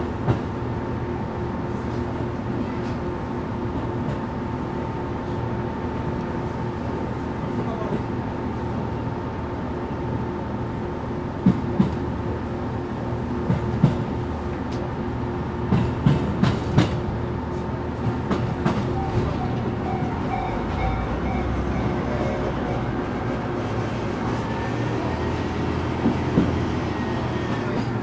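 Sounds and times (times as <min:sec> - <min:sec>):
diesel railcar engine humming: 0:00.0 - 0:28.0
train wheels clacking over rail joints: 0:15.7 - 0:17.1, 0:25.7 - 0:28.0.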